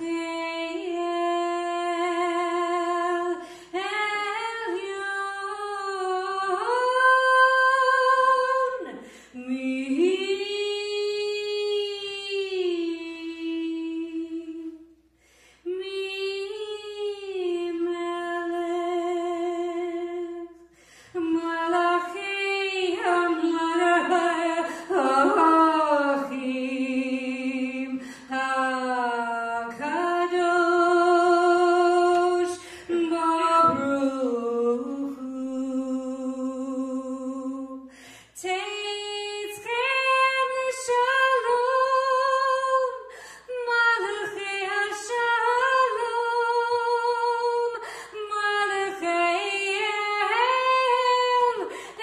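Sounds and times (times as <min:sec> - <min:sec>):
singer breathing: 0:03.4 - 0:03.8, 0:09.0 - 0:09.4, 0:15.1 - 0:15.7, 0:20.6 - 0:21.2, 0:28.0 - 0:28.3, 0:32.6 - 0:32.9, 0:37.8 - 0:38.4, 0:43.1 - 0:43.5, 0:47.8 - 0:48.2, 0:51.7 - 0:52.0.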